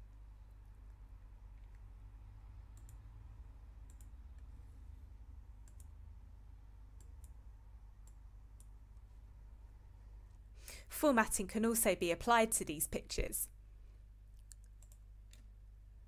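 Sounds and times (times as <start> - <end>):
low steady hum: 0.0 - 16.0
computer mouse clicks: 2.7 - 3.1, 3.8 - 4.5, 5.6 - 6.0, 7.0 - 7.4, 14.3 - 15.5.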